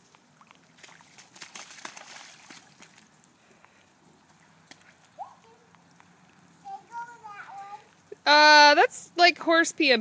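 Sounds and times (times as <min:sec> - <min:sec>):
boots splashing through puddles: 0:00.0 - 0:06.5.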